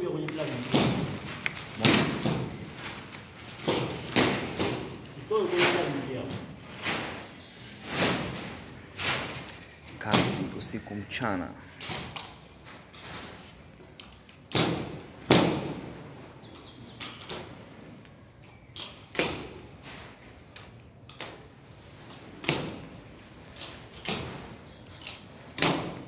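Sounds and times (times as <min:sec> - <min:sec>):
sharp knocks and thuds: 0:00.6 - 0:02.9, 0:03.5 - 0:05.9, 0:14.5 - 0:16.0.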